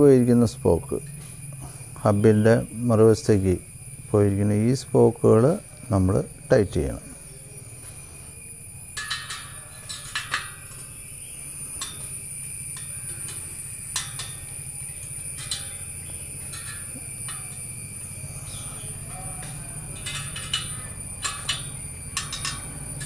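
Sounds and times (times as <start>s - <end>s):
steady low hum: 0.0s - 23.0s
spoke wrench metallic clicks: 19.4s - 23.0s.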